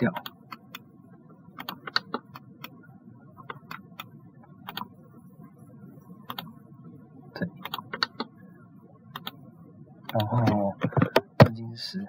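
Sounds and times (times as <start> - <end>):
faint steady hum: 0.0 - 12.0
computer mouse clicking: 1.6 - 2.8, 3.4 - 4.9, 6.3 - 6.5, 7.6 - 8.3, 9.1 - 9.4.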